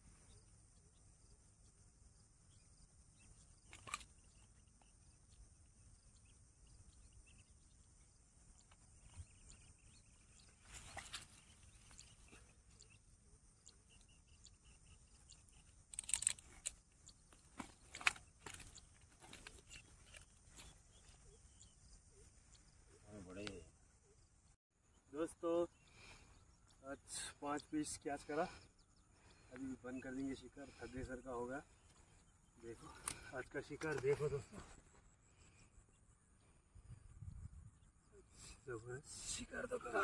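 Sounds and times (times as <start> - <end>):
insects chirring: 0.0 - 40.0
handling rustles and clicks: 15.1 - 21.2.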